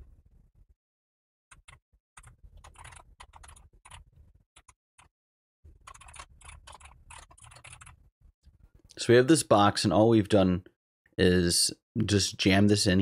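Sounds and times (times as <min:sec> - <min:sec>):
computer keyboard typing: 0:01.5 - 0:04.7, 0:05.8 - 0:08.0.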